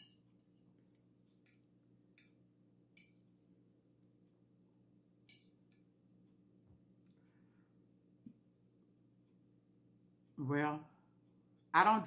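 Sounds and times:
faint eating clicks and smacks: 0.0s - 7.3s.

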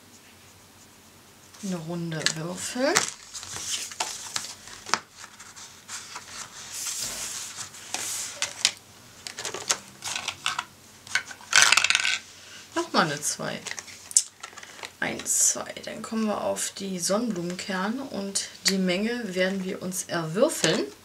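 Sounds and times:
paper cards rustling and sliding: 1.5s - 12.6s, 13.6s - 15.3s
die rattling: 11.2s - 12.2s.

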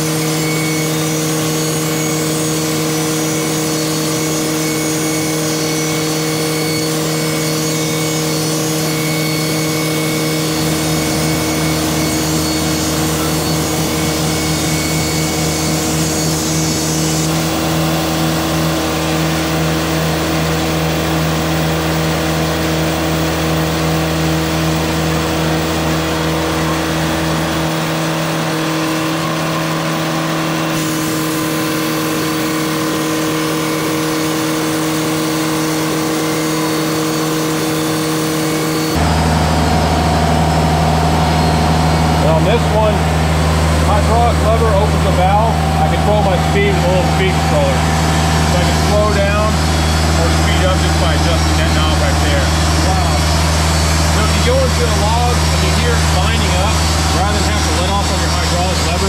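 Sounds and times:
saw blade cutting wood: 0.0s - 59.0s
sawmill engine running: 0.0s - 59.0s
deep low hum: 38.8s - 59.0s.

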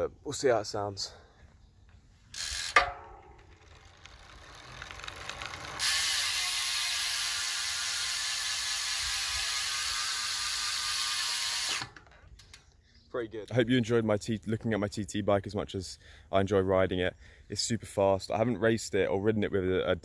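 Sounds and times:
bicycle freehub ticking: 2.3s - 12.6s.

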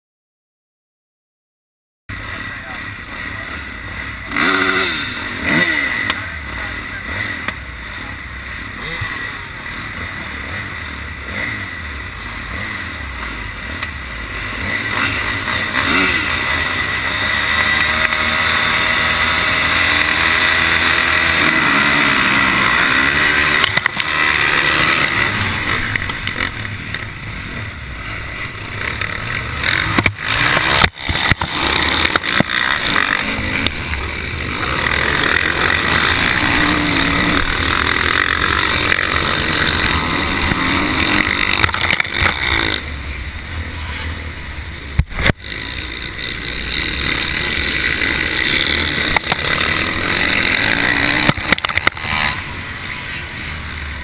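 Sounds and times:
motocross bike engines revving: 2.1s - 54.0s
sharp knocks and clatter: 29.0s - 34.0s, 39.8s - 42.7s, 49.0s - 52.3s.

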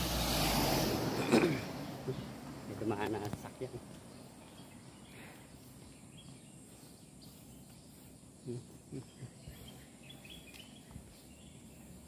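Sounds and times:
faint outdoor ambience: 0.0s - 12.0s
high bird chirps: 3.9s - 12.0s.

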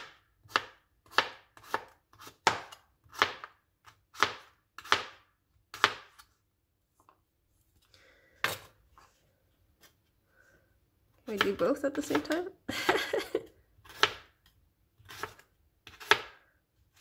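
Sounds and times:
knife chopping garlic: 0.0s - 6.3s, 11.2s - 12.4s, 13.8s - 16.5s.

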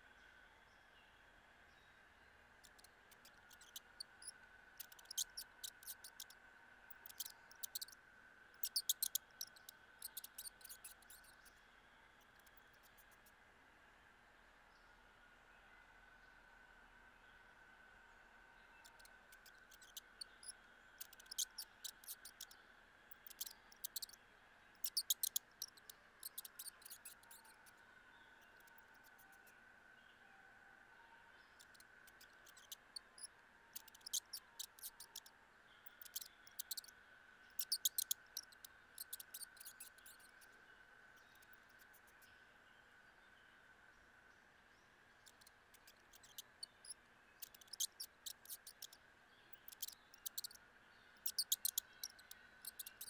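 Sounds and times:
faint high hum: 0.0s - 53.0s
mice clicking on plastic: 2.6s - 8.0s, 8.6s - 11.3s, 18.8s - 24.2s, 24.8s - 27.7s, 31.6s - 36.9s, 37.5s - 40.4s, 45.2s - 49.0s, 49.6s - 50.6s, 51.2s - 53.0s.

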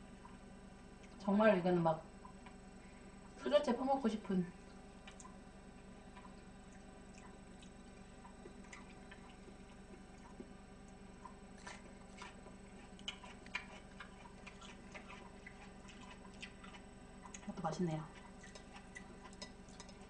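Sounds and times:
faint chewing: 4.6s - 20.0s.

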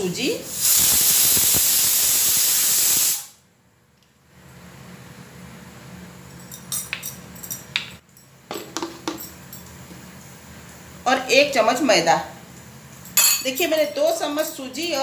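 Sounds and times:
pressure cooker steam hiss: 0.0s - 3.4s
light clinks: 6.3s - 9.8s.

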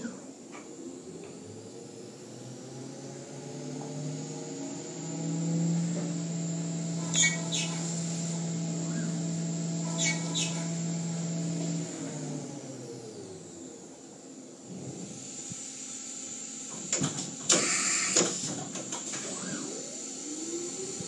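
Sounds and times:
milling machine cutting metal: 1.8s - 13.1s
brief sharp squeals: 7.1s - 7.8s.

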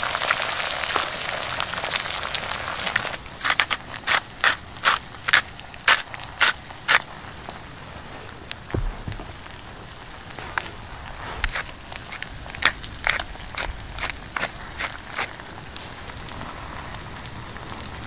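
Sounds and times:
low thump: 8.7s - 11.5s
spitting pops of fat: 8.7s - 15.3s
eggs sizzling in a pan: 9.5s - 18.0s.

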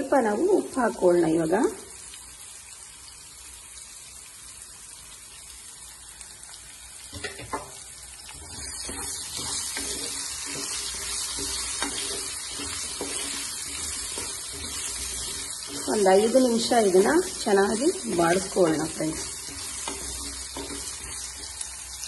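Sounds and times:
food sizzling in hot oil: 0.0s - 22.0s
spatula scraping a pan: 7.1s - 21.9s.

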